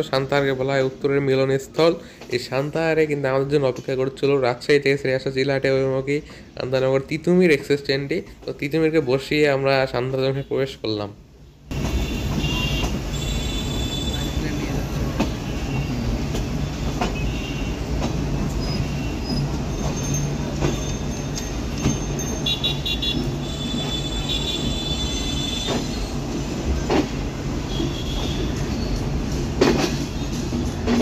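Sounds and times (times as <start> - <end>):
clacks over rail joints: 3.5 - 4.3, 11.7 - 13.2, 15.0 - 31.0
train wheels rumbling: 11.7 - 31.0
high-pitched wheel squeal: 18.6 - 22.8.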